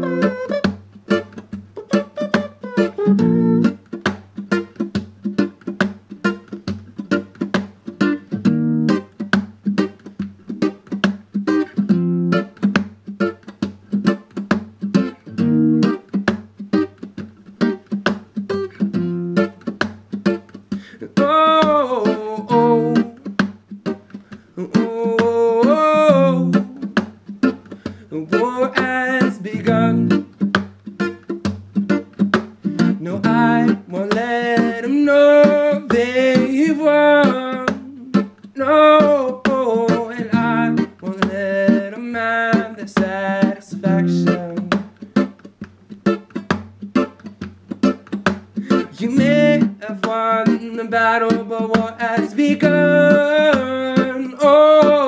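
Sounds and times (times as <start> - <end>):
strummed acoustic guitar: 0.0 - 55.0
man singing: 20.8 - 23.3, 24.6 - 27.1, 28.0 - 30.3, 32.8 - 44.9, 48.6 - 55.0.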